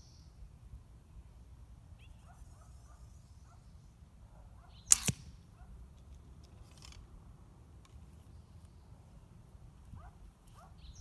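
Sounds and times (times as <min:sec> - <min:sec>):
bowstring cracking on release: 0:04.9 - 0:05.4, 0:06.0 - 0:07.1.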